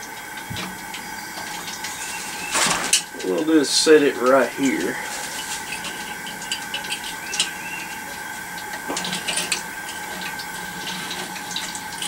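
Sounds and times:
constant hum: 0.0s - 12.0s
propane burner hissing: 0.0s - 12.0s.

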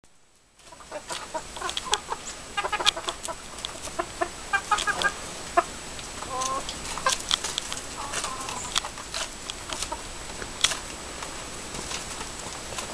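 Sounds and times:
hens clucking: 0.6s - 10.5s
beaks pecking: 0.6s - 12.9s.

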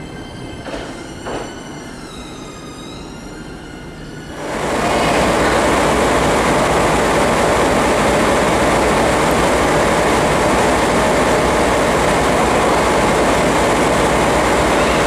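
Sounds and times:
electric trains standing noise: 0.0s - 15.0s.

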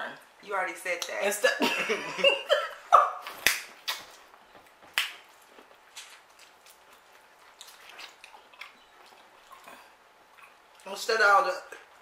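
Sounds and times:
chewing corn cob: 3.8s - 10.9s.

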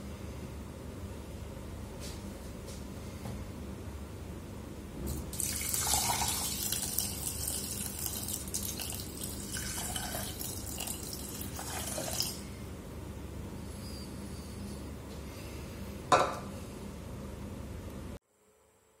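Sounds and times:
water pouring onto rice in pot: 5.3s - 12.4s.

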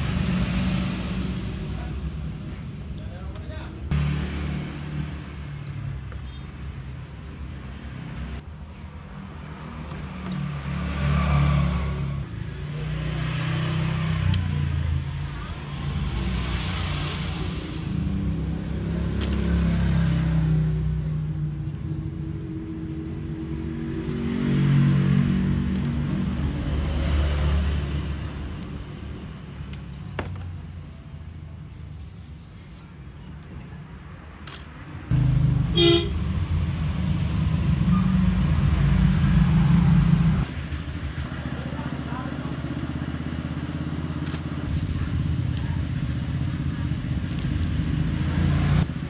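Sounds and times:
motor traffic rumble: 0.0s - 49.0s
small sharp clicks of phone parts: 44.2s - 44.5s.

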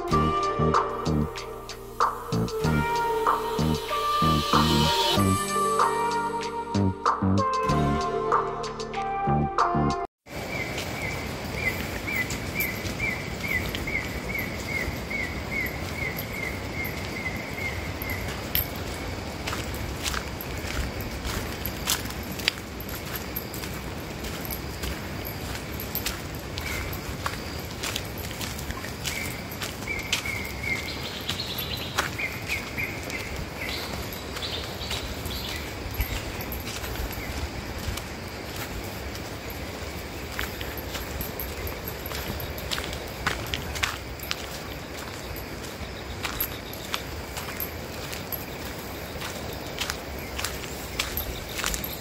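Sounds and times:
outdoor background hiss: 0.0s - 7.1s, 10.3s - 52.0s
steady rushing forest background: 0.0s - 52.0s
bird calling: 10.4s - 19.5s, 20.1s - 52.0s
footsteps on concrete: 15.6s - 52.0s.

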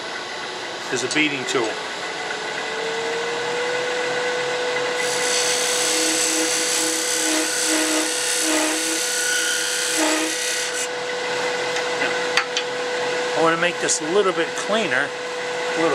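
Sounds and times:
wood lathe humming: 1.8s - 15.9s
high hiss of lathe cutting: 5.0s - 10.9s.

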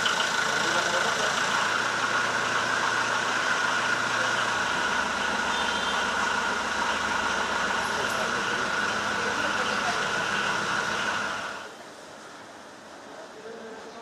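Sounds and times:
car engine running: 0.0s - 11.7s.

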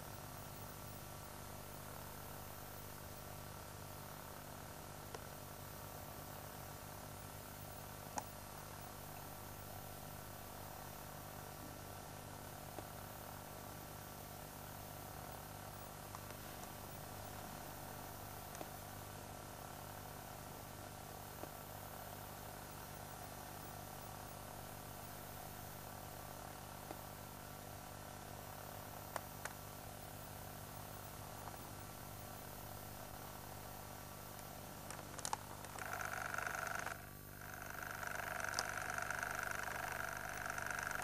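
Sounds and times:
camcorder hiss and hum: 0.0s - 41.0s
faint clicks: 18.5s - 18.7s.

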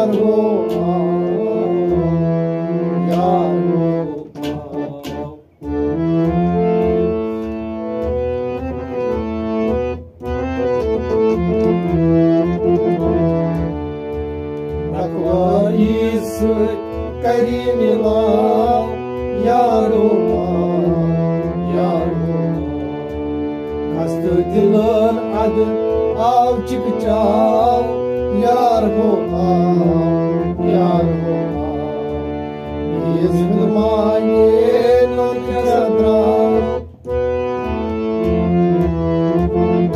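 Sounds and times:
man singing: 0.0s - 5.7s, 14.9s - 22.6s, 23.9s - 36.8s
harmonium melody: 0.0s - 39.9s.

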